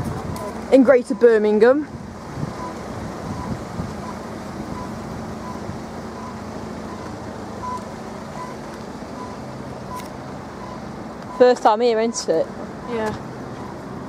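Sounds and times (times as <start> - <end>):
faint warning alarm beeps: 0.3 - 1.6, 2.6 - 7.8, 8.4 - 8.6, 9.2 - 13.8.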